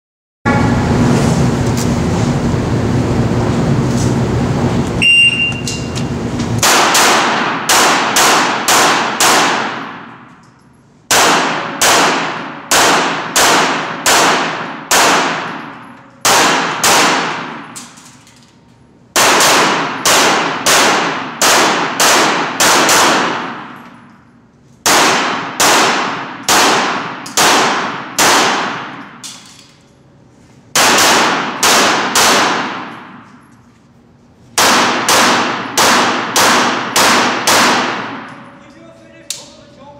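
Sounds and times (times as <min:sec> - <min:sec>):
pistol shots echoing indoors: 0:06.6 - 0:18.4, 0:19.1 - 0:29.9, 0:30.7 - 0:33.6, 0:34.5 - 0:38.6.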